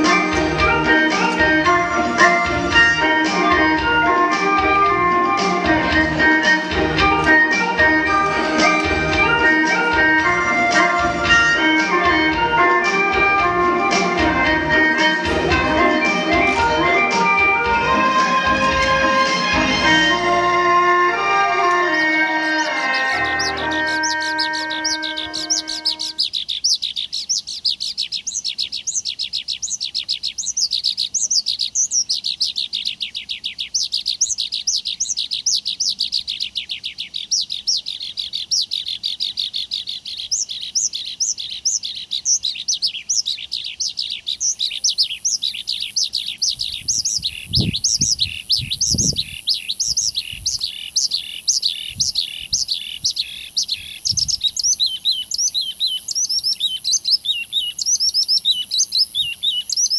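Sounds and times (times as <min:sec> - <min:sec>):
small birds chirping: 0:00.0 - 0:20.2, 0:21.1 - 0:59.9
very high steady tone: 0:13.0 - 0:26.2.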